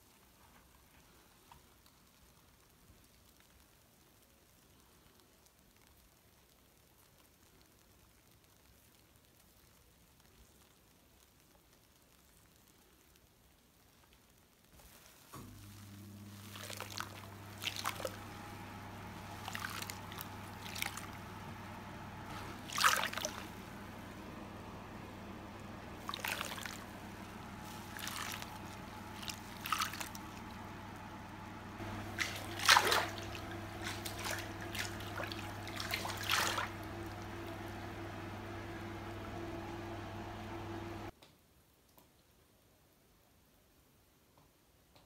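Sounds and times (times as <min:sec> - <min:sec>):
bath water splashing: 0:14.8 - 0:41.1
steady low hum: 0:15.4 - 0:41.1.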